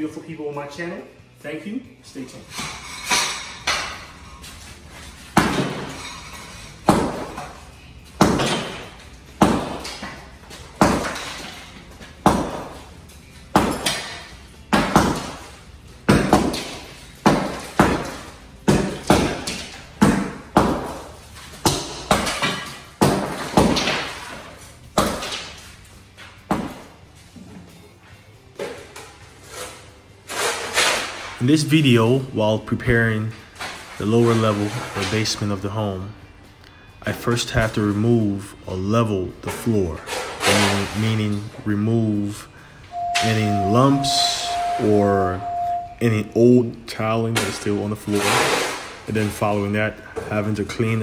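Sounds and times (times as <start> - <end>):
sledgehammer breaking floor tiles: 5.4 - 6.0, 8.2 - 8.8, 9.4 - 10.1, 10.8 - 11.6, 13.6 - 15.4, 16.1 - 24.4, 30.3 - 31.4, 48.2 - 49.0.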